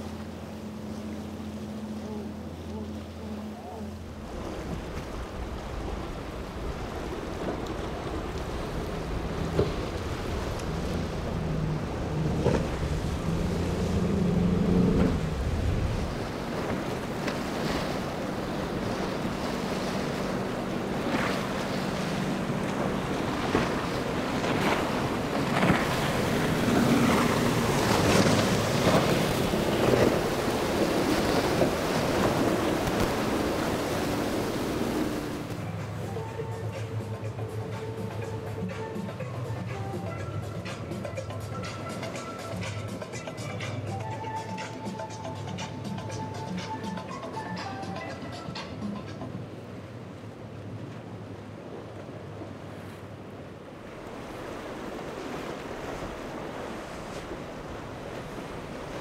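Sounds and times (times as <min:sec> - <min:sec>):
motorboat engine drone: 0:00.0 - 0:59.0
waves splashing against hulls: 0:00.0 - 0:59.0
wind buffeting microphone: 0:04.1 - 0:36.5.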